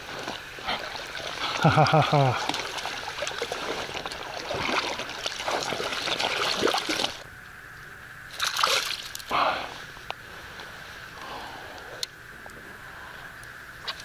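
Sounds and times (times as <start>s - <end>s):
fish thrashing and splashing: 0.0s - 7.2s, 8.4s - 9.3s
loud water splashes: 0.0s - 7.2s, 8.4s - 9.1s.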